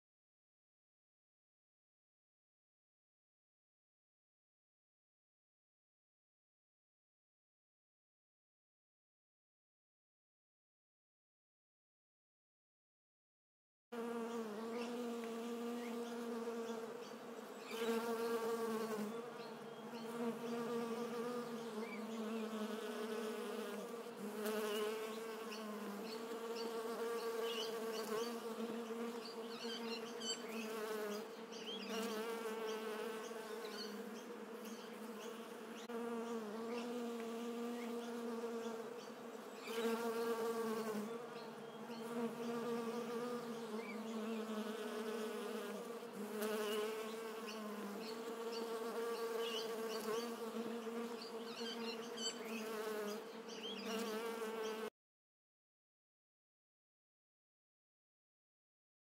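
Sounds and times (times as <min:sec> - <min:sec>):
bee buzzing: 0:14.0 - 0:54.9.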